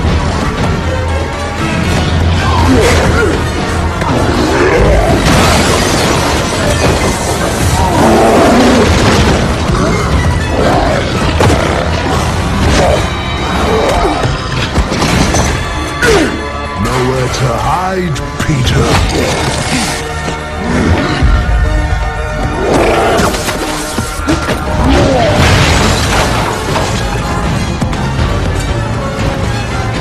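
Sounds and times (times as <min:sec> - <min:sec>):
loud film music score: 0:00.0 - 0:30.0
crashes booms and thuds: 0:24.3 - 0:28.0.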